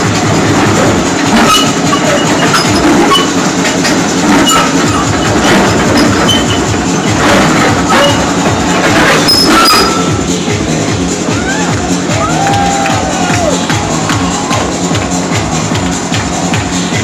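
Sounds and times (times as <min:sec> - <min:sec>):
metallic track clatter: 0:00.0 - 0:11.2
excavator diesel engine running: 0:00.0 - 0:17.0.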